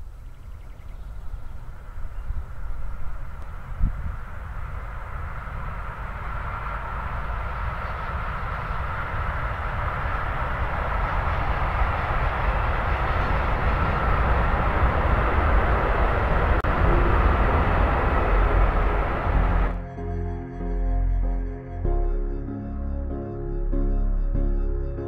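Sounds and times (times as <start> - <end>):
freight train rumbling past: 1.2 - 19.8.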